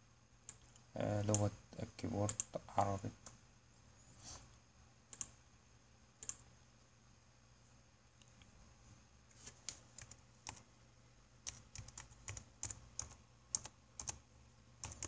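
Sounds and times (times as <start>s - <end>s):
typing on computer keyboard: 2.2s - 2.6s, 5.1s - 5.4s, 6.2s - 6.4s, 9.6s - 10.6s, 11.4s - 14.2s, 14.8s - 15.0s.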